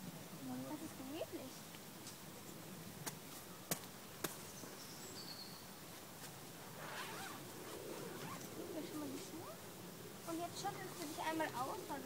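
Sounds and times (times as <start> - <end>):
faint high chirp: 4.5 - 5.7.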